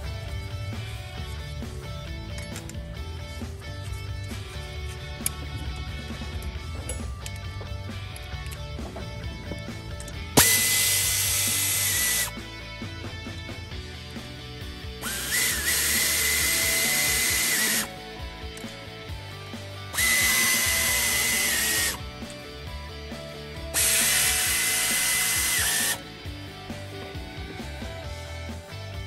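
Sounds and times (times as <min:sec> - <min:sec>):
background music: 0:00.0 - 0:29.0
pneumatic air ratchet whine: 0:10.0 - 0:12.4, 0:15.0 - 0:17.9, 0:19.9 - 0:22.0, 0:23.7 - 0:26.0.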